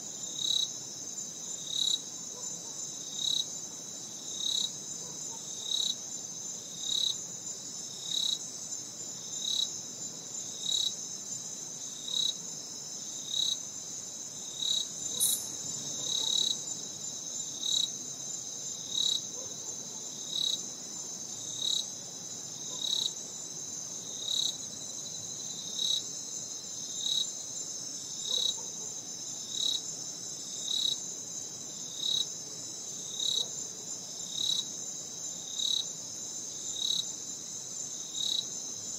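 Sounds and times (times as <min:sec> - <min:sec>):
insect chirp: 0:00.0 - 0:38.9
insects trilling: 0:10.6 - 0:21.9.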